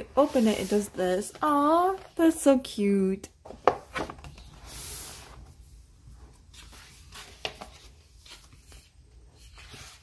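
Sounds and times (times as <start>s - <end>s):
book pages turning: 3.6s - 5.3s, 6.4s - 10.0s.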